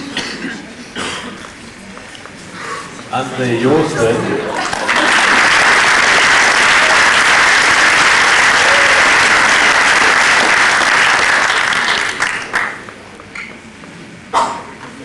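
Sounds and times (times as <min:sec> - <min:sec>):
audience applauding: 0:04.5 - 0:12.9.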